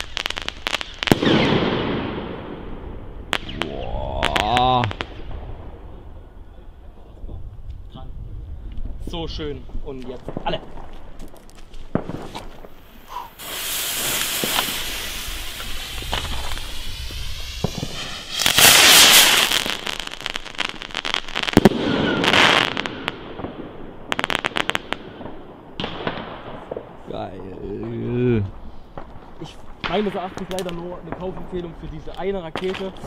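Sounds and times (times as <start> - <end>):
sharp crackling: 0.0 - 6.4, 8.8 - 33.0
rocket motors hissing: 13.0 - 19.2.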